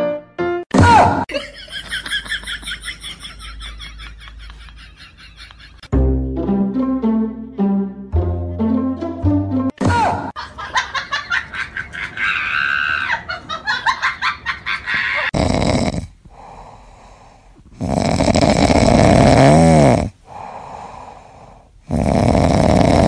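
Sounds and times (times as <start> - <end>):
cat snoring: 15.3 - 23.0.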